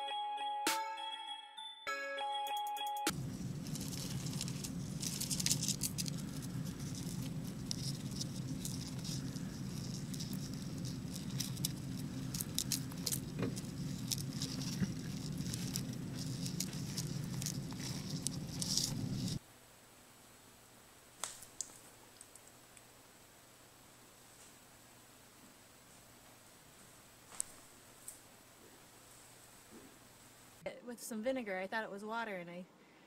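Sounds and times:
insects scratching on sand: 3.1s - 19.4s
low steady hum: 3.1s - 21.2s.

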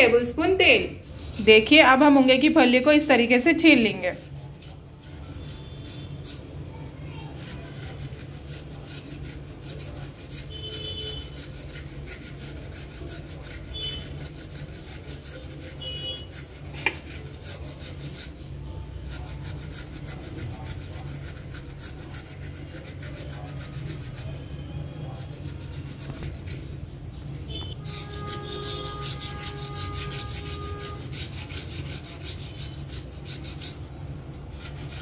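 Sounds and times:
knife rasping skin off a pod: 7.3s - 18.4s, 25.1s - 26.7s.

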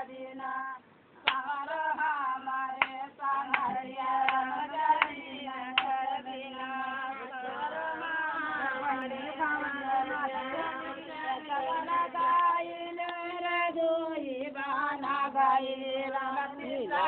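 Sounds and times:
women singing: 0.0s - 17.0s
hand claps: 1.2s - 1.6s, 2.8s - 6.0s, 12.2s - 13.2s.

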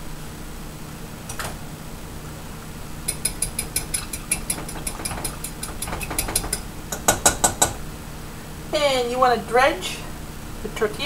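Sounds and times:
fork clinking against bowl: 3.1s - 7.8s.

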